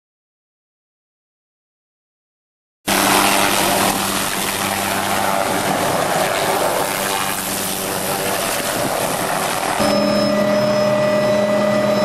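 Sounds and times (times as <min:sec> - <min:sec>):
helicopter turbine and rotor noise: 0:02.9 - 0:12.0.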